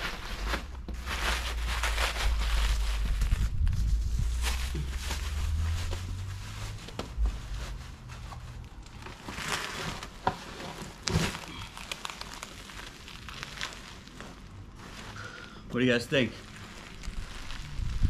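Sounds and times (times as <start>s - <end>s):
plastic wrapping crinkling: 0.0s - 18.0s
low rumble: 0.1s - 9.2s, 16.8s - 18.0s
sharp crackles and clicks: 11.1s - 14.4s, 16.4s - 18.0s.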